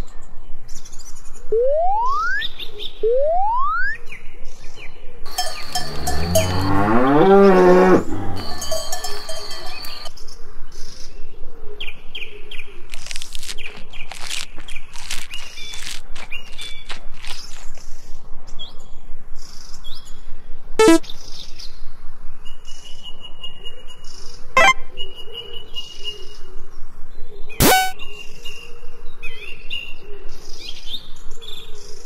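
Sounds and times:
cow mooing: 5.3s - 10.0s
cowbell clanking: 5.3s - 10.1s
brief chirps: 20.8s - 21.0s, 24.6s - 25.0s, 27.6s - 28.0s.

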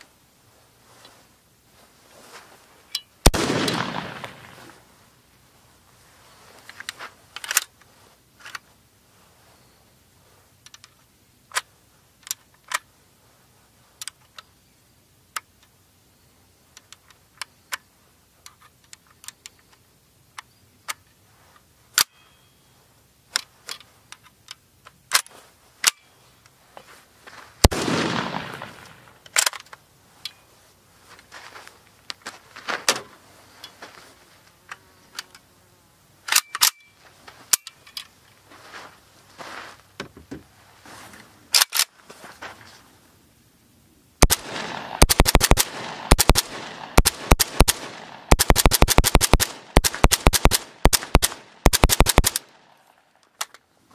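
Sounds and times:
rifle action metal clicks: 10.7s - 12.9s, 27.6s - 30.4s, 36.3s - 38.1s, 41.5s - 42.0s, 44.2s - 53.6s.

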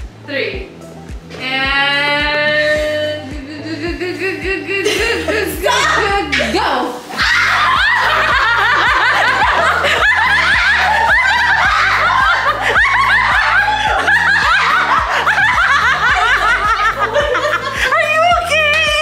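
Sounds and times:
background music: 0.0s - 19.0s
women laughing: 4.1s - 6.6s, 7.2s - 18.7s.

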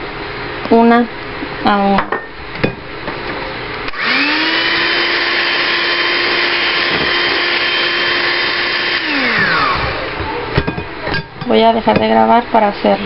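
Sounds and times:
electric hand mixer running: 3.9s - 10.6s.

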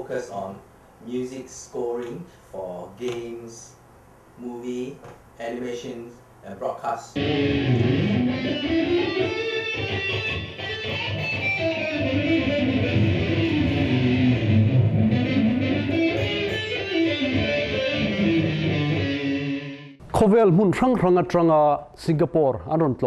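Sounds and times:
electric guitar lead line: 7.2s - 20.0s.

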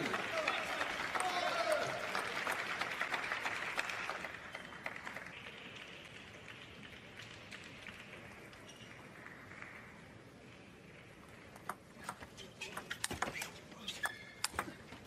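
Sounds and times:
crowd applauding: 0.0s - 8.6s.

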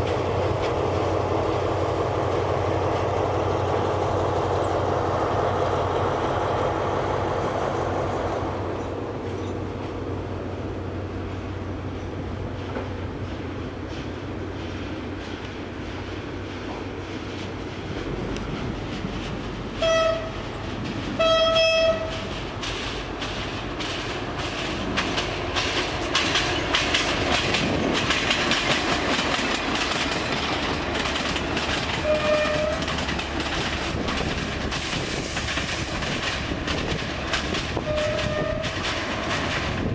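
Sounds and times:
diesel train engine passing: 0.0s - 39.9s
wheels clacking over rail joints: 12.0s - 39.9s
train horn blasts: 19.8s - 20.4s, 21.2s - 22.2s, 32.0s - 32.9s, 37.8s - 38.8s.

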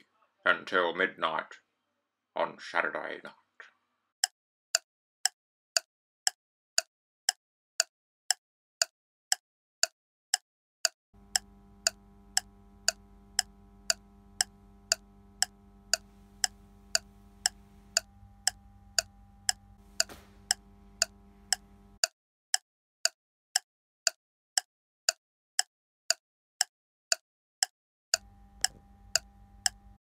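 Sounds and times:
clock ticking: 4.2s - 30.0s
low hum of held tones: 11.2s - 22.0s, 28.2s - 30.0s.

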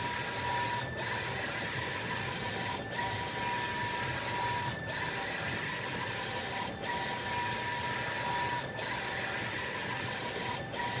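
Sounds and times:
printer carriage whine: 0.0s - 11.0s.

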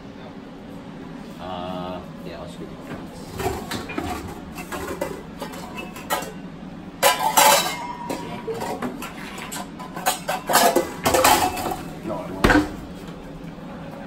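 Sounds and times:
metal bowls clattering: 3.3s - 6.4s, 7.0s - 12.8s.

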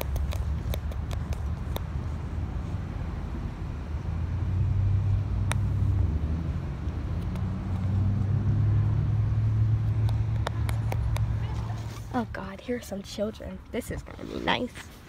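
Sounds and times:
car engine rumbling: 0.0s - 15.0s.

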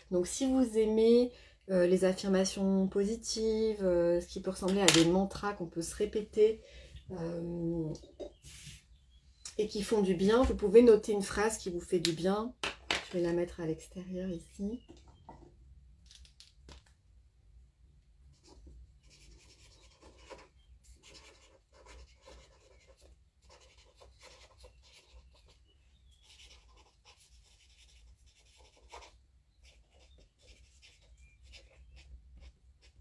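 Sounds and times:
marker scratching on paper: 18.3s - 33.0s.

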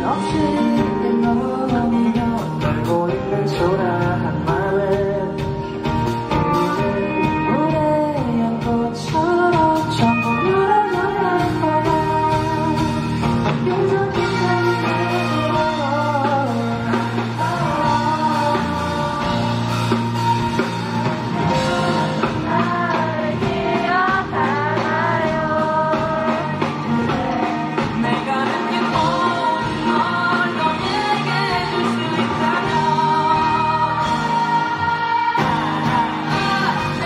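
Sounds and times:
man singing: 0.0s - 19.8s, 25.3s - 34.5s
electric bass: 0.0s - 37.0s.

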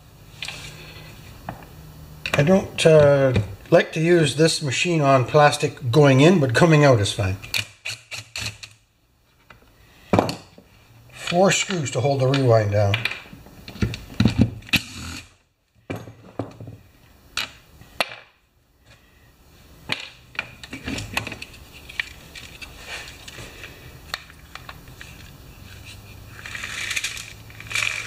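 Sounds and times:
plastic parts clicking and rattling: 19.9s - 25.3s, 26.4s - 28.0s.

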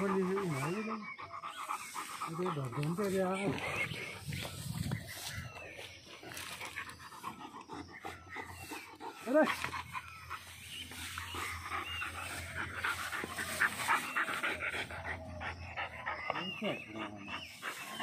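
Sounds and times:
dog panting: 0.0s - 18.0s
rustling in grass: 1.5s - 7.2s, 8.7s - 14.7s.

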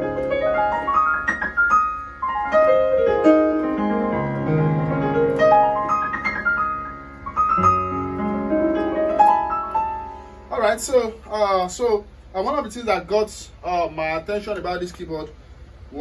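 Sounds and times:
keyboard playing piano runs: 0.0s - 10.5s.

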